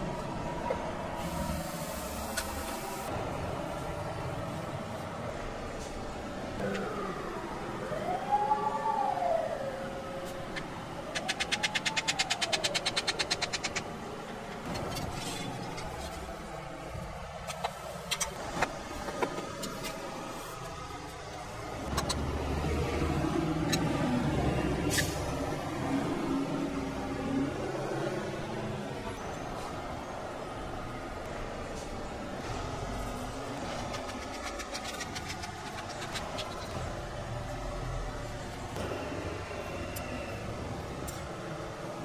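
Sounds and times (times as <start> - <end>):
siren wailing: 6.6 - 13.4
scattered clicks: 10.6 - 13.9.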